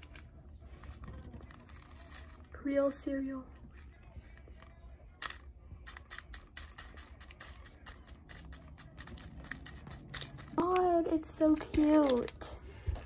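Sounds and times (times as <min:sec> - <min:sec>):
toy cereal pieces clicking into bowl: 0:05.2 - 0:12.6.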